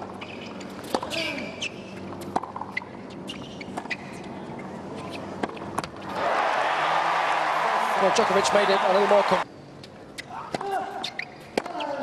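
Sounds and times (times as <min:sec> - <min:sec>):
sneaker squeaks on court: 0:00.2 - 0:05.2, 0:10.2 - 0:12.0.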